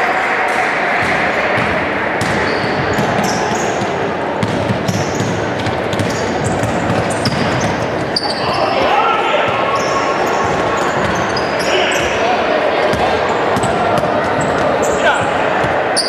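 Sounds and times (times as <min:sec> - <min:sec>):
basketball bouncing: 0:01.0 - 0:08.7
sneaker squeaks: 0:02.2 - 0:12.2, 0:13.6 - 0:15.4.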